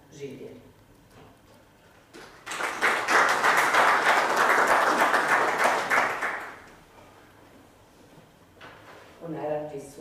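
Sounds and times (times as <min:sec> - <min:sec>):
audience applauding: 0:02.2 - 0:06.7.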